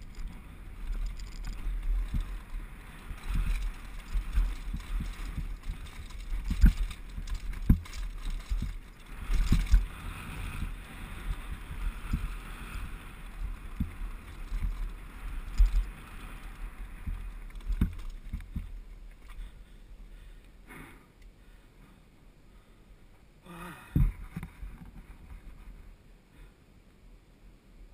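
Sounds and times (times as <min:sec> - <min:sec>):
wind buffeting microphone: 0:00.0 - 0:18.8
tyres crunching over stones: 0:00.0 - 0:19.4
bike thuds and rattles on rocks: 0:00.0 - 0:19.5.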